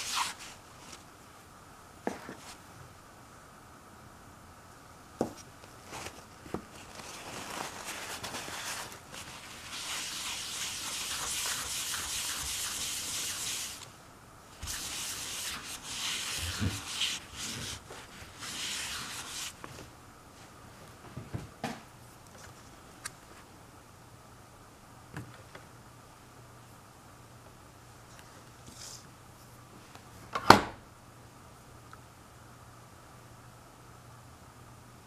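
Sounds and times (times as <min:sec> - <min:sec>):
paper towel rubbing on stone: 0:07.2 - 0:13.9, 0:14.6 - 0:19.7.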